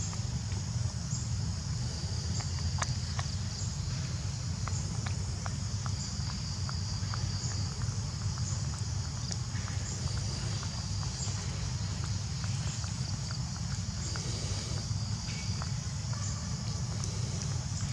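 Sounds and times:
insects chirring: 0:00.0 - 0:17.9
low steady rumble: 0:00.0 - 0:17.9.

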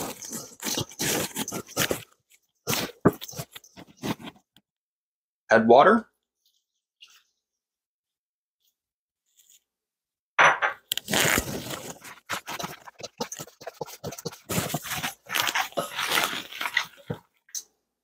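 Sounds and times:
hands squishing meat: 0:11.5 - 0:17.2.

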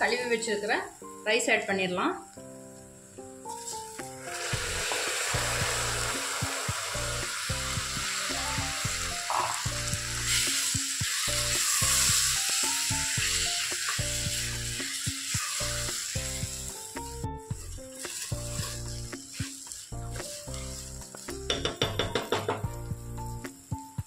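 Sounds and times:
rice sizzling in oil: 0:00.0 - 0:22.0
background music: 0:00.0 - 0:24.0
spatula stirring: 0:03.5 - 0:07.1, 0:07.8 - 0:22.4.

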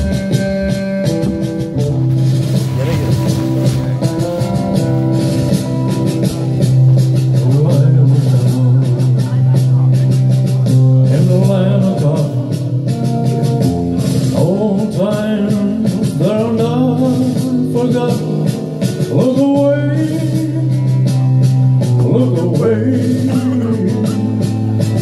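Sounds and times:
rock and roll backing track: 0:00.0 - 0:25.0
man singing into a microphone: 0:07.2 - 0:25.0.

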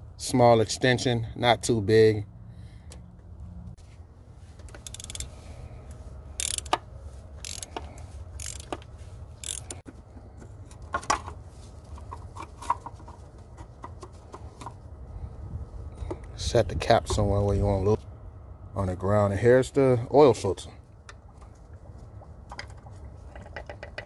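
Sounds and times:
steady low hum: 0:00.0 - 0:23.4
ratchet clicking and knocking: 0:04.7 - 0:05.3, 0:06.4 - 0:06.8, 0:07.4 - 0:09.8.

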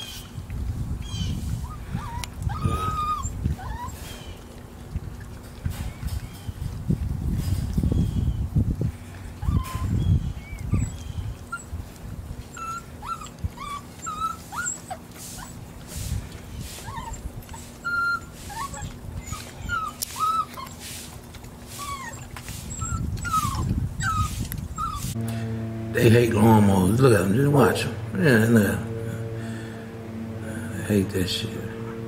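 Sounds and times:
puppies whimpering and whining: 0:00.0 - 0:00.4, 0:01.0 - 0:06.7, 0:07.6 - 0:25.2
faint low hum: 0:00.0 - 0:32.0.

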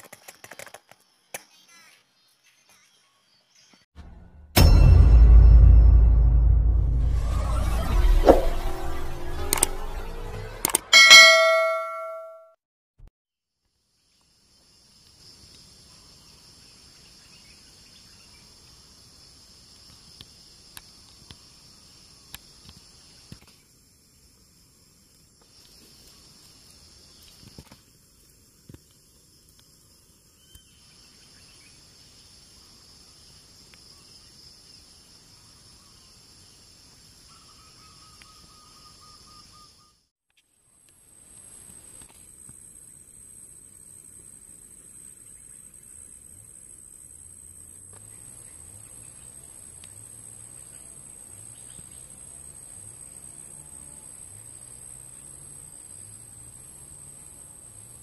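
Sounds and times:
short lower trill: 0:04.6 - 0:12.4.

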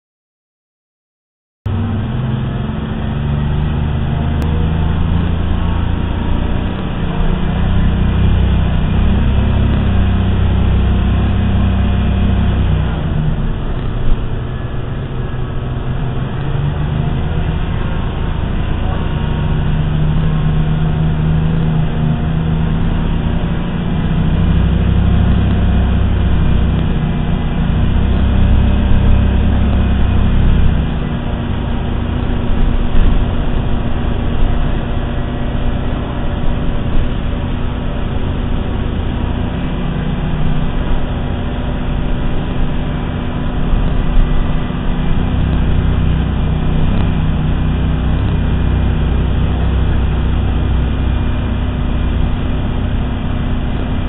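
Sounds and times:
bus engine droning: 0:01.7 - 0:54.0
road noise: 0:01.7 - 0:54.0.

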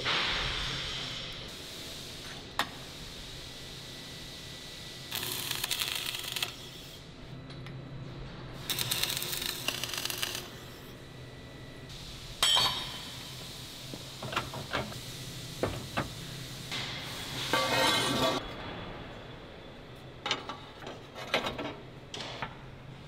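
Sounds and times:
welding arc crackling: 0:05.0 - 0:07.1, 0:08.6 - 0:10.8.

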